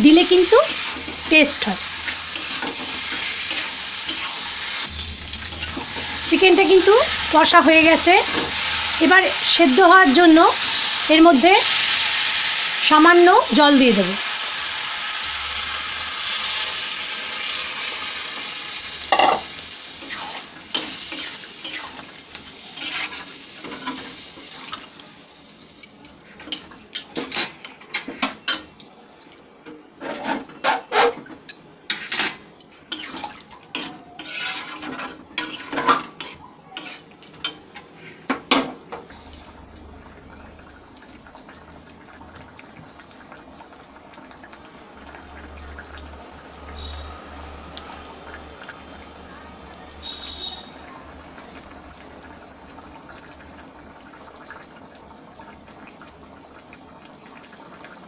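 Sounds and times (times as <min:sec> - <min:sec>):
water sizzling in hot pan: 0:00.0 - 0:28.8, 0:31.5 - 0:37.9, 0:38.5 - 0:58.0
metal spatula scraping pan: 0:00.5 - 0:09.0, 0:19.1 - 0:24.2, 0:30.0 - 0:31.3, 0:31.9 - 0:38.2.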